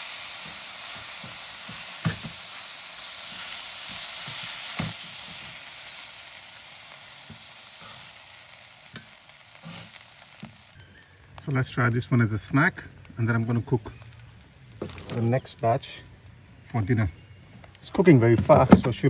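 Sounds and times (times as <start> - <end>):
chicken sizzling in a pan: 0.0 - 10.8.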